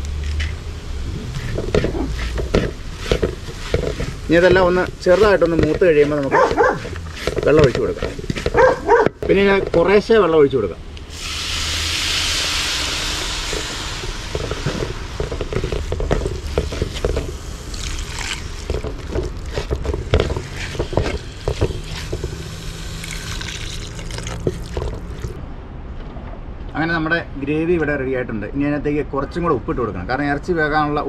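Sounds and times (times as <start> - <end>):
water pouring into metal pot: 11.1 - 15.3, 16.4 - 19.5, 20.4 - 25.4
water splashing: 13.2 - 25.4.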